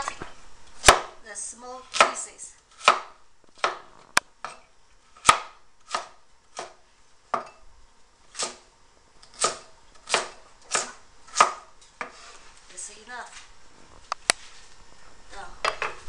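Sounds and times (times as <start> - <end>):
cleaver chopping on wooden board: 0.8 - 1.2, 2.8 - 3.8, 5.2 - 7.5, 8.4 - 8.6, 9.4 - 12.2.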